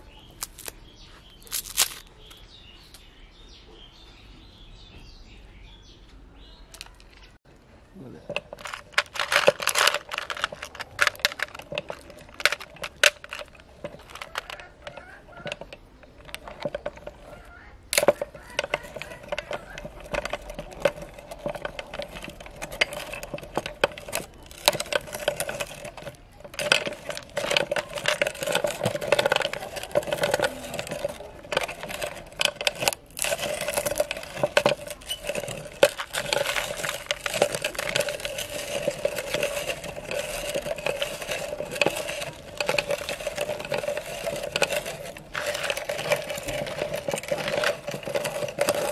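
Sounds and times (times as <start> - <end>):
hard candy crunching in grinder: 0.0 - 2.4, 8.0 - 48.9
lollipops clicking when handled: 0.4 - 0.8, 1.4 - 2.4.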